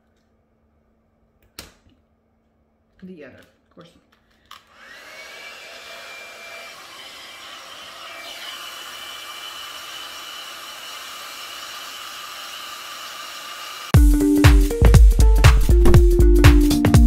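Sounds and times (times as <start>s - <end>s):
hot-air brush fan whining: 4.5s - 14.0s.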